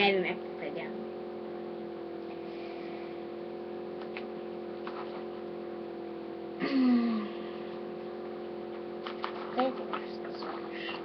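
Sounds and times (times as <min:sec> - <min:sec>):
low electrical hum: 0:00.0 - 0:11.0.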